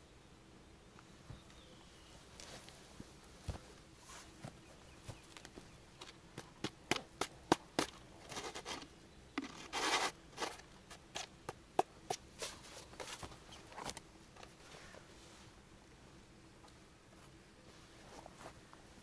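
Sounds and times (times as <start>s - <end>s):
rustling and scraping: 7.8s - 15.5s, 17.2s - 18.9s.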